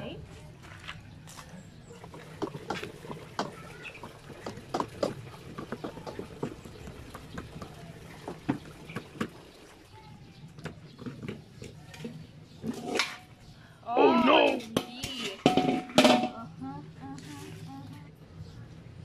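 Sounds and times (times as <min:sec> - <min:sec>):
water sloshing: 0:01.2 - 0:13.4
dishes clinking: 0:14.5 - 0:16.5.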